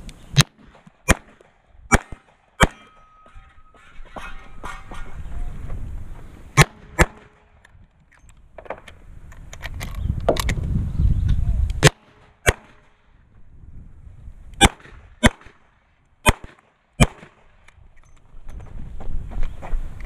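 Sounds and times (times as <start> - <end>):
low rumble on microphone: 9.0 - 11.8, 13.2 - 15.2.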